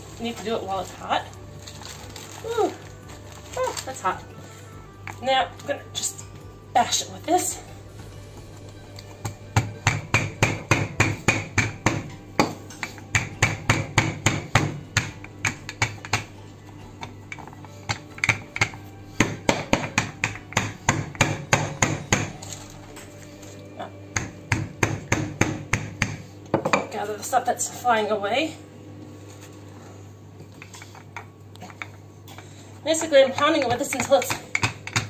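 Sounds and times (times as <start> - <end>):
rolling pin pounding dough: 9.0 - 22.4, 24.1 - 26.8, 32.9 - 35.0.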